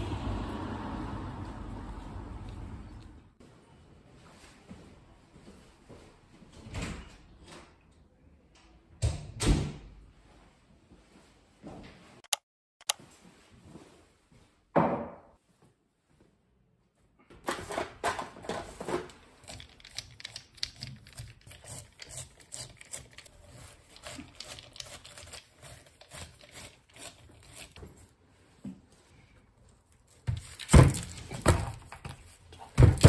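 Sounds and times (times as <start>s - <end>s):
screwdriver clicks and scrapes: 12.2s - 13.0s, 19.4s - 27.8s.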